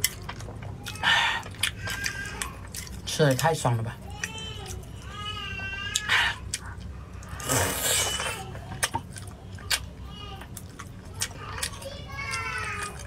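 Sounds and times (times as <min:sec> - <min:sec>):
hissy slurping: 0:07.2 - 0:08.4.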